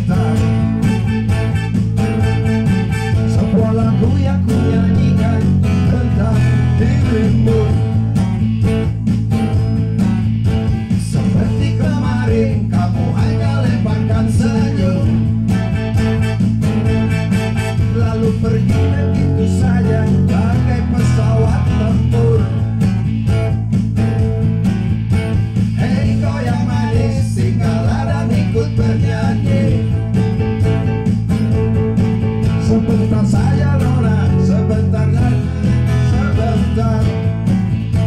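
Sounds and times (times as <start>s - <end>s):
man singing into a microphone: 0.0s - 1.1s, 3.1s - 8.0s, 11.0s - 15.3s, 17.6s - 22.8s, 25.7s - 30.1s, 32.4s - 37.5s
acoustic guitar: 0.0s - 38.0s
keyboard: 0.0s - 38.0s.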